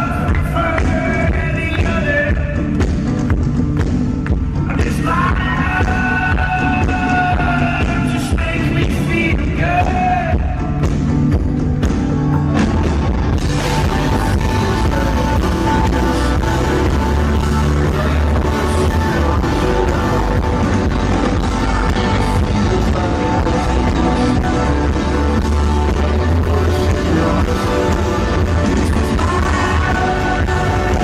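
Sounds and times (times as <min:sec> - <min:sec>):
live rock band playing: 0:00.0 - 0:31.0
person singing: 0:04.7 - 0:10.7, 0:13.3 - 0:31.0.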